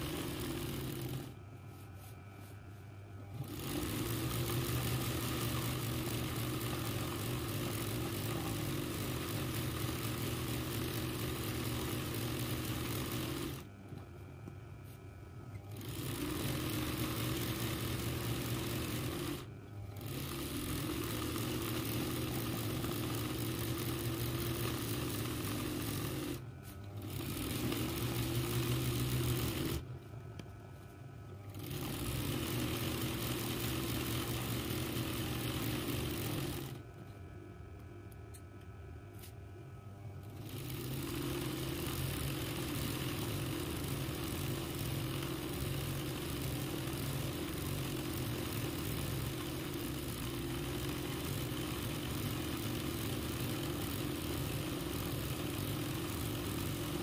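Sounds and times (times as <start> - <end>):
sewing machine running: 0.0 - 1.4, 3.2 - 13.7, 15.6 - 29.9, 31.4 - 36.9, 40.2 - 57.0.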